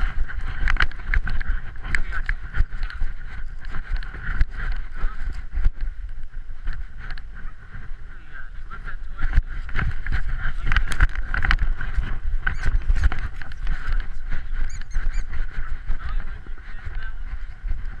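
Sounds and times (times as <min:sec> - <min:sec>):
rustling dry grass and leaves: 0:00.0 - 0:18.0
camera housing rubbing and knocking: 0:09.6 - 0:15.5.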